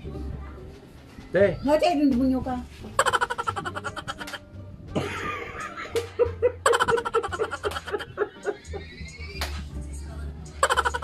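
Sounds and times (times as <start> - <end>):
man and woman laughing: 3.0 - 4.4, 5.0 - 9.2, 10.6 - 11.0.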